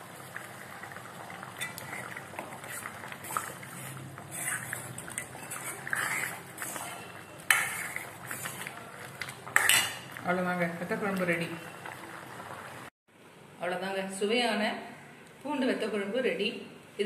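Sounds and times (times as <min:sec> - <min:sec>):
ladle stirring thick stew: 0:00.0 - 0:12.1
liquid sloshing: 0:00.0 - 0:12.9.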